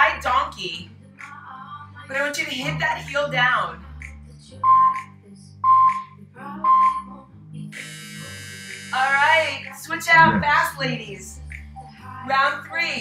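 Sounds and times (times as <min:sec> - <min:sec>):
workout music with steady beat: 0:02.7 - 0:07.1, 0:09.9 - 0:10.8
timer short beeps: 0:04.6 - 0:06.0, 0:06.6 - 0:07.1
harsh buzzer tone: 0:07.8 - 0:09.5, 0:10.1 - 0:10.5.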